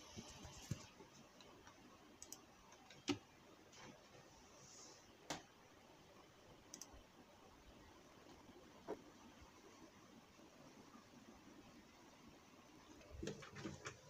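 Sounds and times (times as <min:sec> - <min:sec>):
faint clicks and taps: 0:00.1 - 0:04.0.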